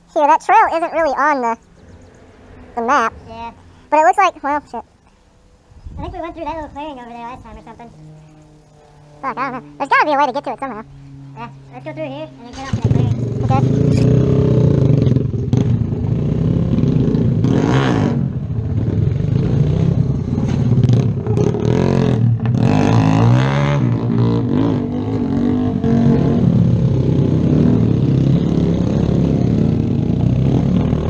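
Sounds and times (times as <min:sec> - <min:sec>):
motorcycle engine revving: 0:01.0 - 0:04.0, 0:04.8 - 0:31.0
clatter and scraping: 0:19.7 - 0:21.7.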